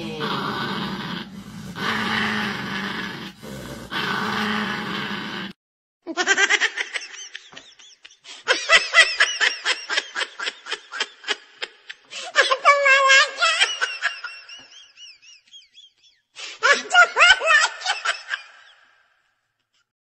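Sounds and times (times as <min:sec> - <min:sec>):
small dog growling: 0:00.0 - 0:05.6
high-pitched giggling laughter: 0:06.1 - 0:16.0, 0:16.6 - 0:18.8.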